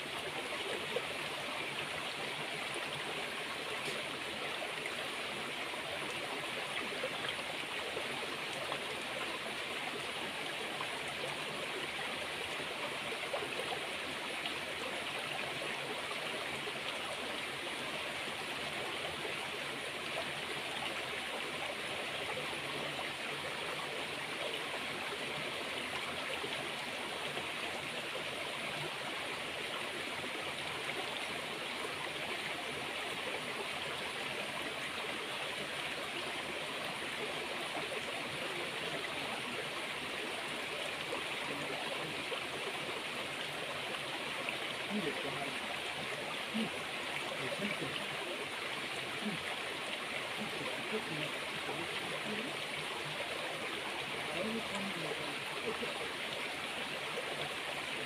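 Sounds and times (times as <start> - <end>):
flowing water rushing: 0.0 - 58.0.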